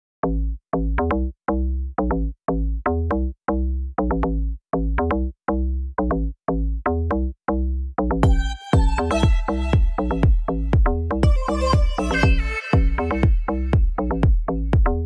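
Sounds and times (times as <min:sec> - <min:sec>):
electronic music with drum-machine beat: 0:08.0 - 0:15.0.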